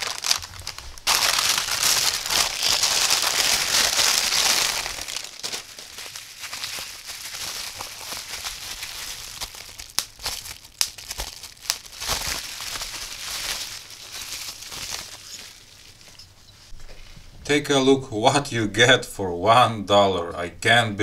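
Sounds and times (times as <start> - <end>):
bubble wrap clicks: 0.0 - 16.2
bubble wrap crinkling: 0.0 - 16.4.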